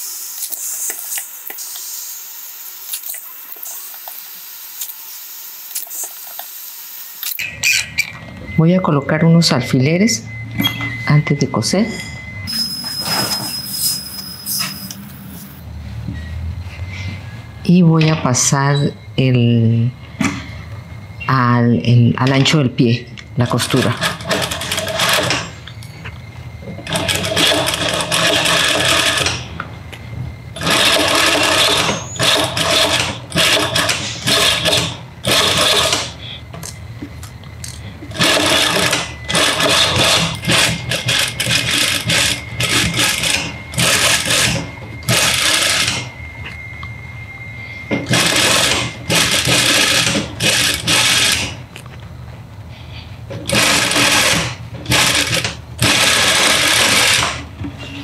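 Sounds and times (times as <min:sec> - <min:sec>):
sewing machine stitching: 0:23.4 - 0:25.5, 0:26.8 - 0:29.5, 0:30.6 - 0:36.2, 0:38.1 - 0:46.1, 0:48.1 - 0:51.6, 0:53.5 - 0:57.5.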